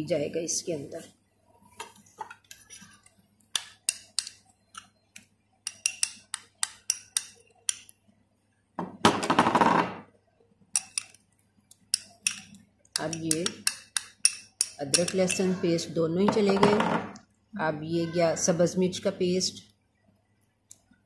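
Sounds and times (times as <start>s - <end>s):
metal spoon clinking on glass bowl: 5.7s - 6.2s, 12.0s - 15.6s.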